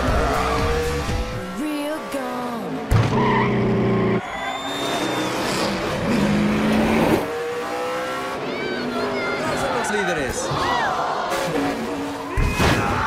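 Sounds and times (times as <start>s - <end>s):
race car engines: 0.0s - 13.0s
tyre squeal: 3.2s - 6.4s.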